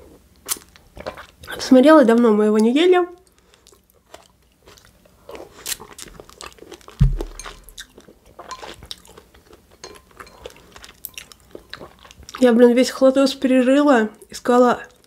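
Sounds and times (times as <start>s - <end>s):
chewing and crunching salad: 0.0s - 13.1s
low thump: 7.0s - 7.7s.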